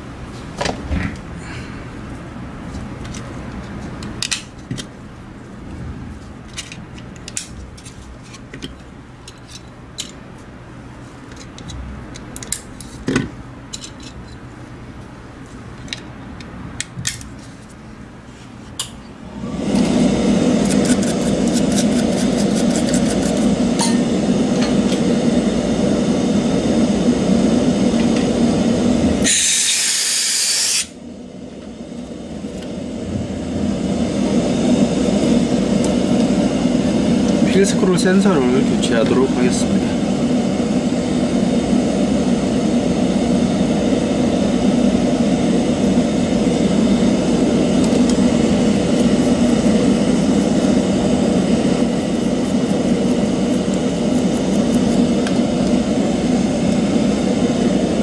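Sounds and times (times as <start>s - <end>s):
loud steady machine noise: 19.2s - 58.0s
sharp hiss: 29.2s - 31.0s.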